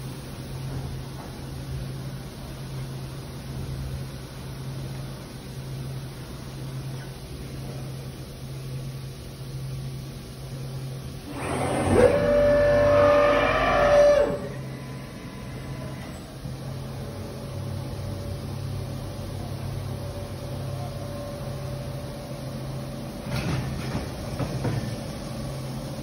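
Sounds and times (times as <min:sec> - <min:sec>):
machine humming: 0:08.9 - 0:26.0.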